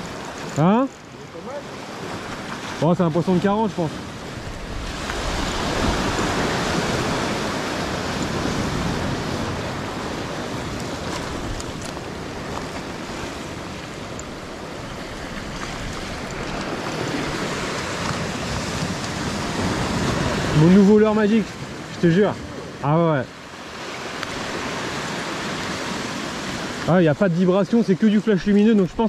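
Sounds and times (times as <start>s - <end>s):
surf breaking on rocks: 1.4s - 29.0s.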